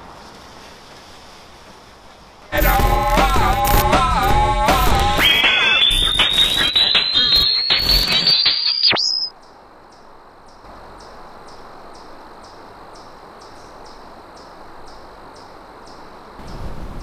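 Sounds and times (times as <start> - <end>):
crickets chirping: 0.0 - 4.2, 5.0 - 17.0
music with rising whine: 2.5 - 9.2.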